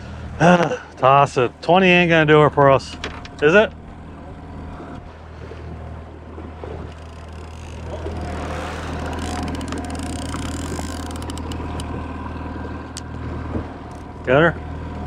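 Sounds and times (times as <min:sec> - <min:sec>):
outboard motor humming: 0:00.0 - 0:15.0
water noise: 0:00.0 - 0:15.0
rapid sharp ticks: 0:09.0 - 0:11.9.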